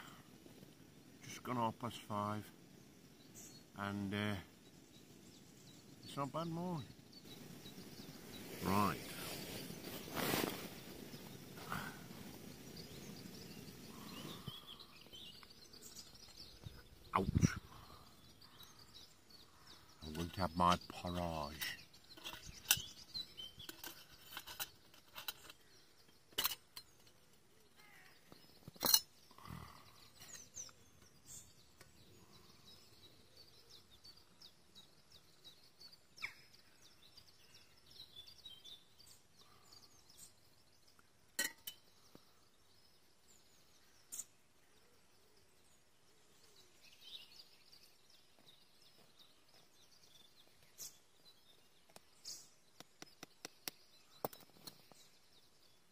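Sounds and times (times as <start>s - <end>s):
birds singing: 0.0s - 55.9s
metal spoon scraping a pot: 21.6s - 25.7s.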